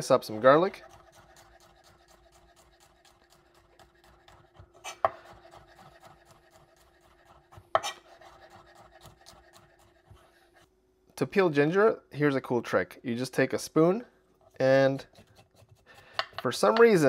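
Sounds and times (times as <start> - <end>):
knife tapping on cutting board: 16.1 - 17.0.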